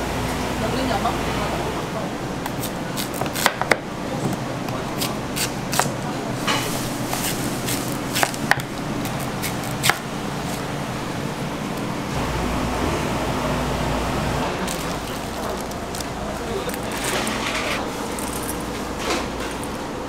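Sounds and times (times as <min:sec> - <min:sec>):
kitchen background hum: 0:00.0 - 0:20.0.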